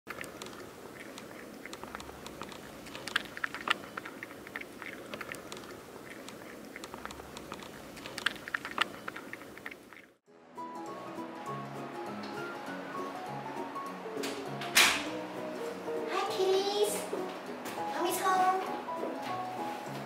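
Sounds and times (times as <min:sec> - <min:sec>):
cat crunching dry kibble: 0:00.1 - 0:10.2.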